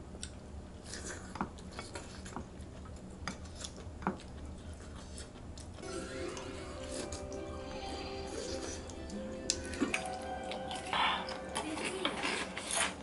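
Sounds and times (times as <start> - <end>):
background music: 5.8 - 13.0.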